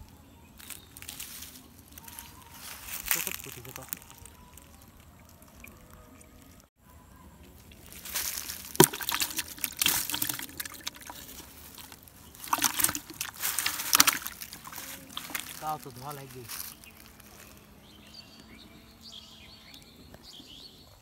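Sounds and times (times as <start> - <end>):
fish splashing in bucket: 7.6 - 16.8
knock against bucket: 8.8 - 11.1.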